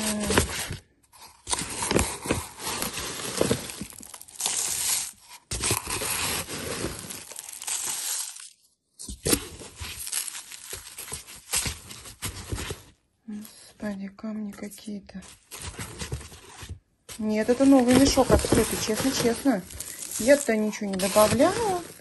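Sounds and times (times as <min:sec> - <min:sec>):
granules scraping and rustling: 0:15.4 - 0:22.0.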